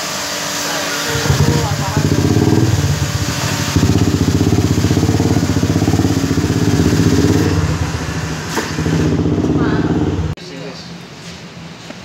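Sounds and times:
motorcycle engine idling: 1.1s - 10.4s.

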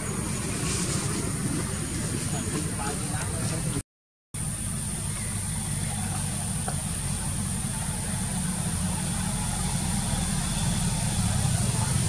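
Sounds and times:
high-pitched whine: 4.4s - 12.0s
low engine-like rumble: 4.4s - 12.0s.

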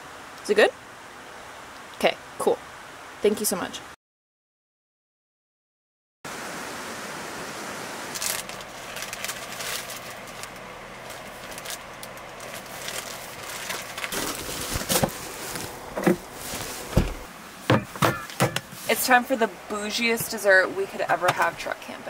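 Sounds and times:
plastic bag crinkling: 8.1s - 16.9s
fridge lid knocking: 17.0s - 18.6s.

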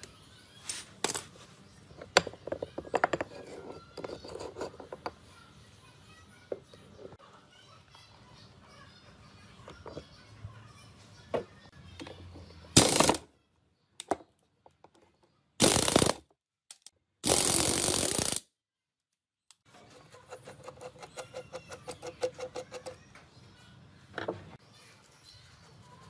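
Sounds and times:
impact wrench bursts: 12.8s - 13.2s, 15.6s - 16.2s, 17.2s - 18.4s.

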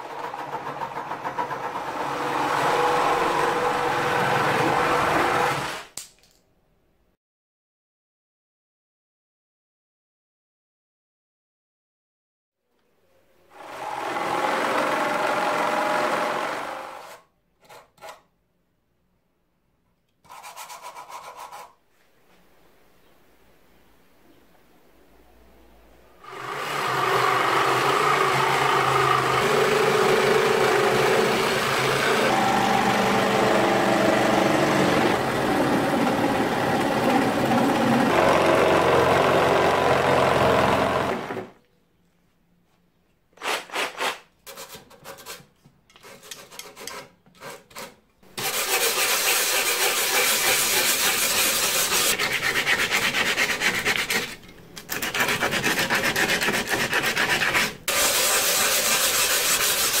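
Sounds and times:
sanding block rubbing wood: 20.3s - 21.8s, 43.4s - 60.0s
reciprocating saw cutting wood: 26.2s - 41.5s, 46.1s - 60.0s.

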